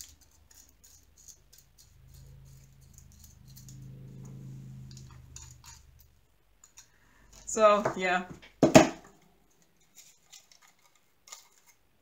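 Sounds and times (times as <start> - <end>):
faint low hum: 0.0 - 8.4.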